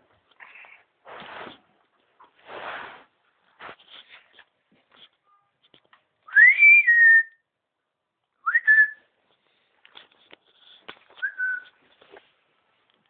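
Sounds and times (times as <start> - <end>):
person whistling: 6.3 - 7.4, 8.5 - 9.0, 11.2 - 11.8.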